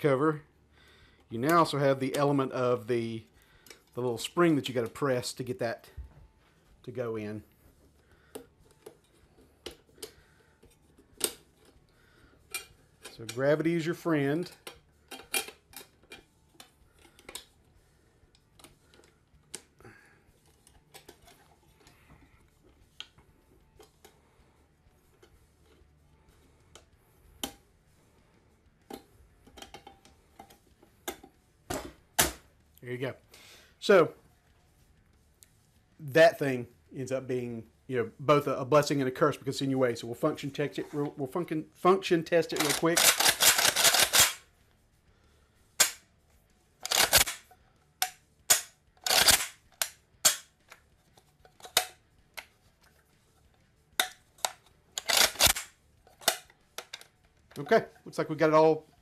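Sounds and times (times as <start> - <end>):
gun dust cover metal clicks: 42.5 - 44.4, 46.8 - 52.5, 54.0 - 57.2.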